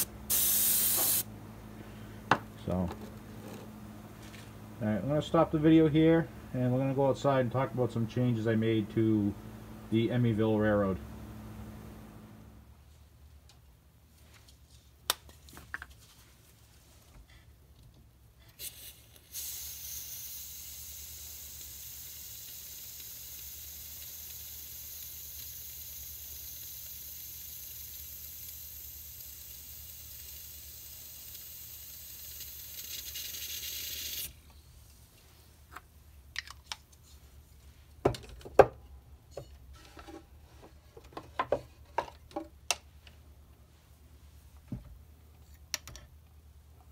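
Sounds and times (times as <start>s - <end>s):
gas hissing from a can: 0.0s - 1.3s, 18.5s - 34.4s.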